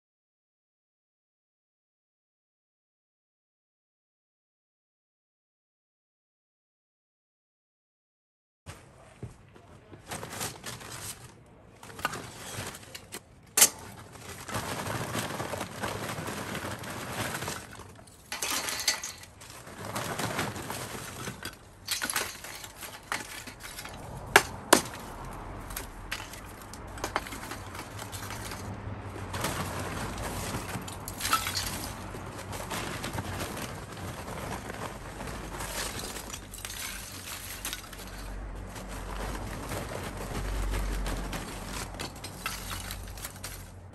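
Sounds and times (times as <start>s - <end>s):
bag rustling: 9.9s - 43.9s
charcoal lumps clinking together: 10.0s - 43.9s.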